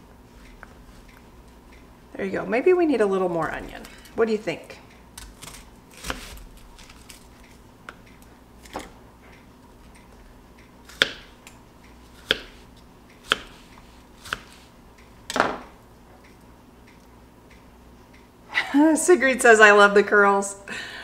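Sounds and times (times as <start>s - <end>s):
knife chopping on cutting board: 10.9s - 11.4s, 12.2s - 14.6s.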